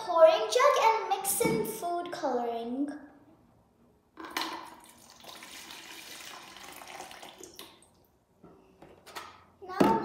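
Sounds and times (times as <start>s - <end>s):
liquid pouring into plastic pitcher: 4.3s - 8.1s.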